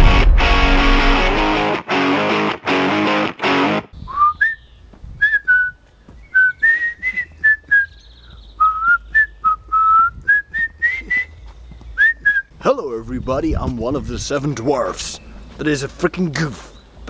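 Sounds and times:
electric guitar music: 0.0 - 3.9
man whistling a tune: 4.0 - 8.0, 8.6 - 11.4, 12.0 - 12.5.

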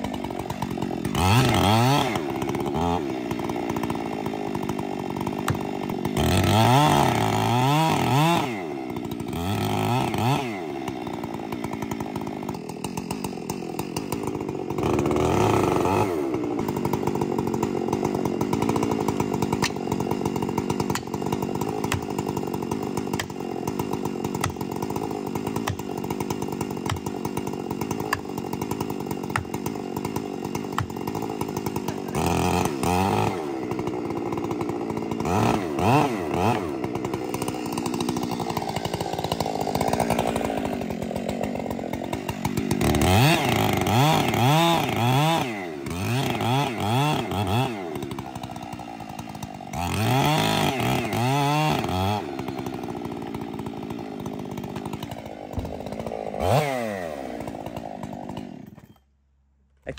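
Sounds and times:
chainsaw cutting wood: 0.0 - 59.2.

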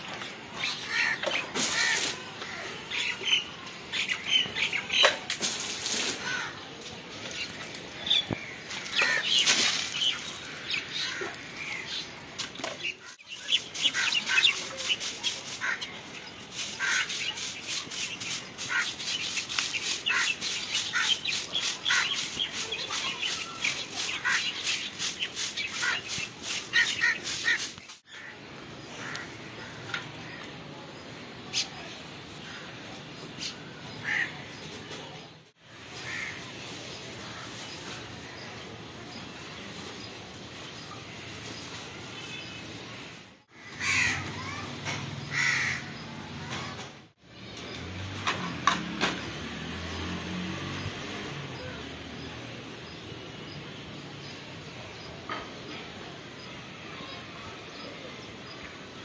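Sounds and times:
broom sweeping dirt ground: 0.0 - 28.3, 35.0 - 44.6, 47.7 - 53.0
water splashing onto earth: 8.8 - 11.0.

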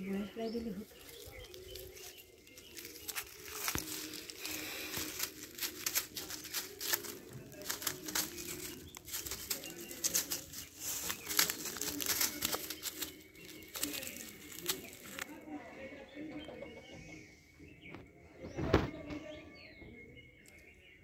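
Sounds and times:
fish flopping on dry leaves: 0.8 - 15.3.

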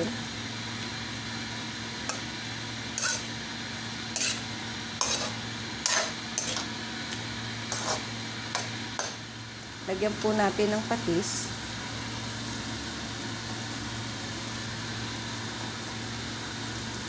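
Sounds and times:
steady low hum: 0.0 - 17.0
spatula scraping frying pan: 2.9 - 3.4, 4.1 - 6.8, 7.7 - 9.2.

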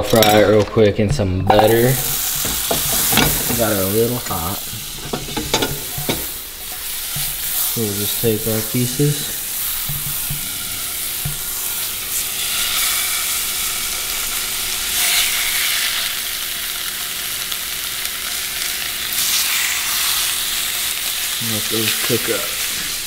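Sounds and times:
fish sizzling in a skillet: 1.8 - 23.0.

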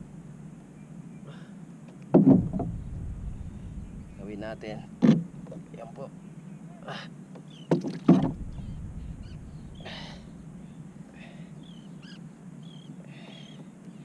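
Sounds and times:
knocks on a kayak: 2.1 - 2.8, 7.7 - 8.4
breathy puffs: 9.7 - 10.4, 11.0 - 11.7.

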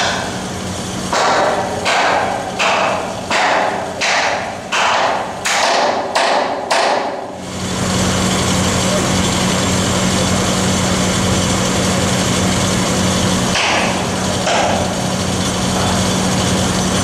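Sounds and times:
hammer striking steel: 0.0 - 0.4, 1.1 - 7.2, 13.5 - 14.9.

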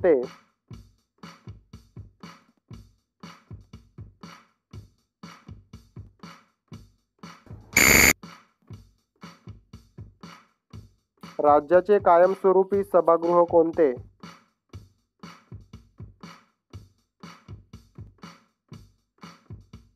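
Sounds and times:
buzzer tone: 7.8 - 8.2.

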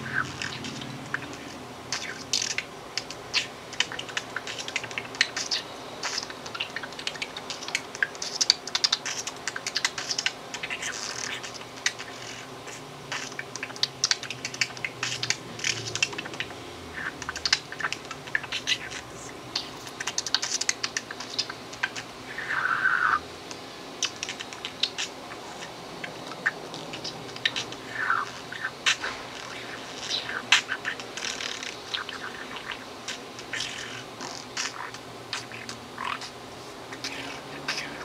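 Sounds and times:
budgerigar clicking and popping: 0.0 - 38.0
budgerigar chirps: 19.6 - 23.2.

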